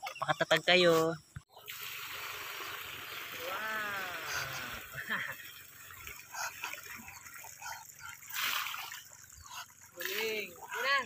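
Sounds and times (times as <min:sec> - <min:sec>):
water gushing into muddy trench: 0:01.6 - 0:11.0
light splashes: 0:02.9 - 0:10.9.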